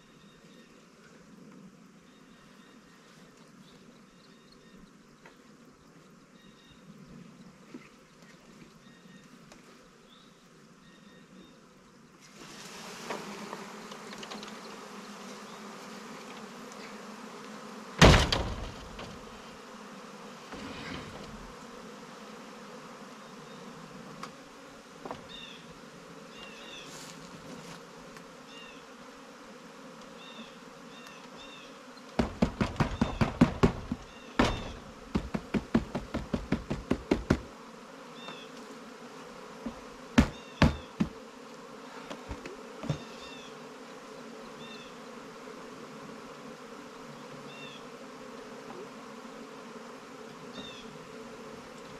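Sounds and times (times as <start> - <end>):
bees buzzing: 8.8 - 51.9
knocks and rattles: 18.0 - 19.3, 32.2 - 37.5
loud thump: 18.0 - 19.3, 32.2 - 37.5, 40.2 - 41.2.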